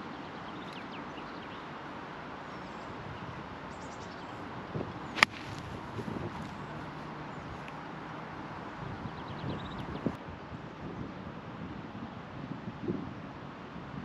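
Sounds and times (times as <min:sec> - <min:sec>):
golf club striking ball: 0:05.2 - 0:06.6.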